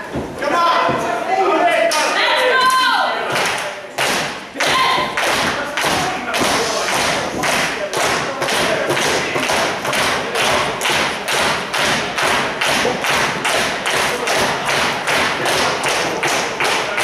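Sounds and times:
crowd clapping in unison: 0:01.9 - 0:17.0.

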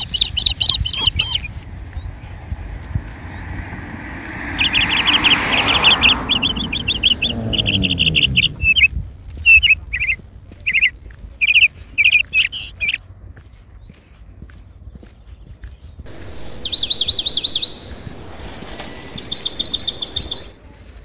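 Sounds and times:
small birds chirping: 0:00.0 - 0:20.6
vehicle passing by: 0:01.1 - 0:13.0, 0:16.0 - 0:20.8.

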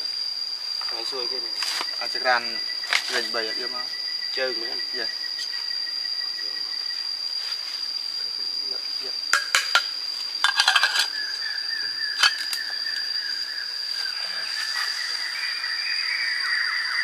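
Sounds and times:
insect drone: 0:00.0 - 0:17.0
sharp clinks: 0:09.4 - 0:11.2, 0:12.2 - 0:12.6.

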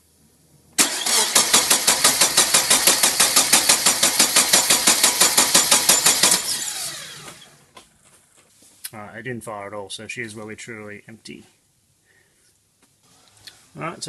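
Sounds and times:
starter motor cranking engine: 0:00.8 - 0:07.6.

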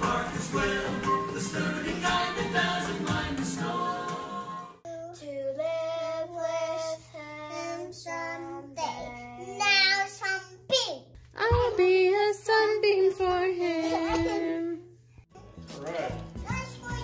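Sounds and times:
girl singing unaccompanied: 0:04.8 - 0:10.6.

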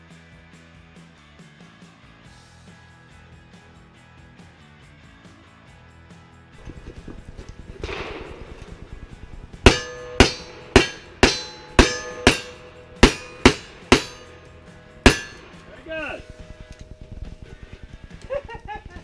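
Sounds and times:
pistol shots with ringing tail: 0:06.6 - 0:17.0.

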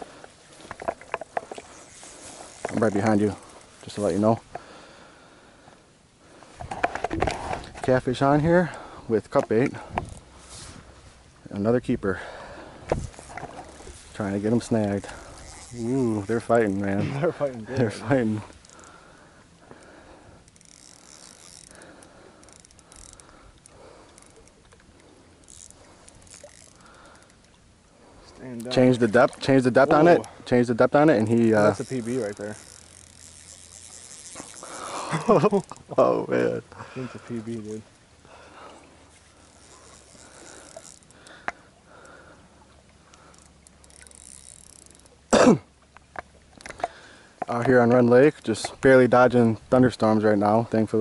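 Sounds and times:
fishing reel clicking: 0:00.7 - 0:04.7, 0:06.6 - 0:10.4, 0:13.1 - 0:27.6, 0:28.6 - 0:35.8, 0:39.4 - 0:45.3, 0:46.1 - 0:48.8.

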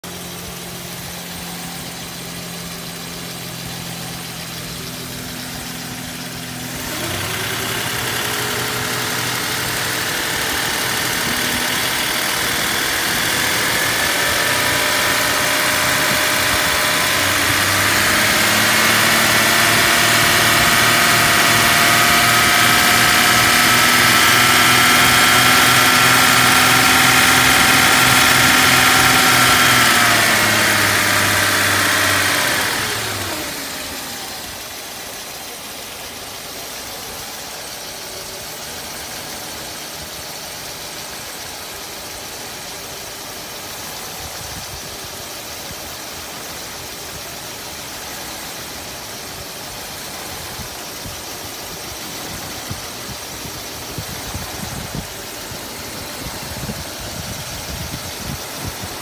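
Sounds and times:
car engine idling and revving: 0:00.0 - 0:59.0.

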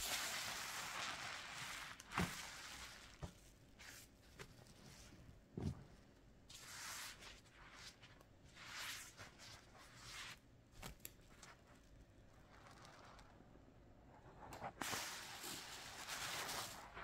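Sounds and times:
sponge swishing and squeezing: 0:00.0 - 0:10.4, 0:14.7 - 0:17.0.

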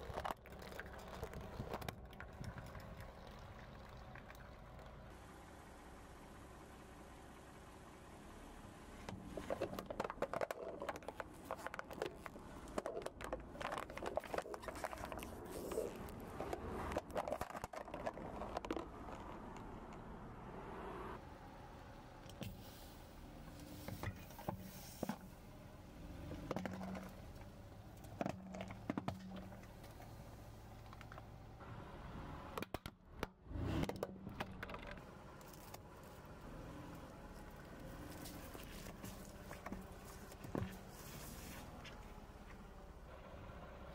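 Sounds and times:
sharp cracks under tyre: 0:00.0 - 0:03.4, 0:09.1 - 0:20.2, 0:26.2 - 0:30.2, 0:30.8 - 0:31.4, 0:32.5 - 0:41.0
tyre crushing plastic cups: 0:09.3 - 0:19.5.

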